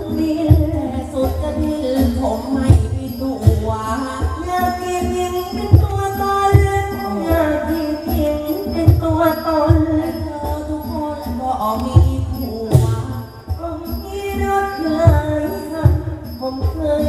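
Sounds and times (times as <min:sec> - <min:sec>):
drum beat: 0:11.5 - 0:16.8.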